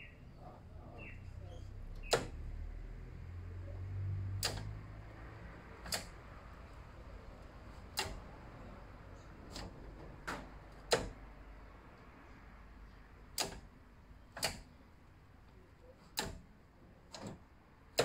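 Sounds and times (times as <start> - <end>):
metallic gear-shift clicks: 1.9 - 2.4, 4.3 - 4.8, 5.8 - 6.2, 7.8 - 8.3, 9.4 - 11.3, 13.3 - 14.8, 16.0 - 16.5, 17.1 - 18.0.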